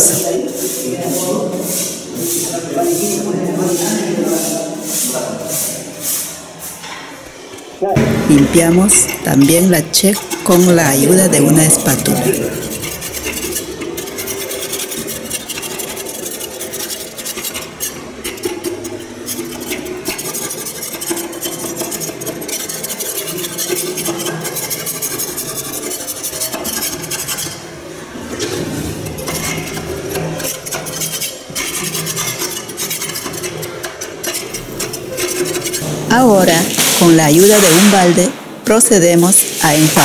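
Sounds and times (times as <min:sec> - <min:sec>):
metal spatula scraping deposits: 0:07.9 - 0:40.0.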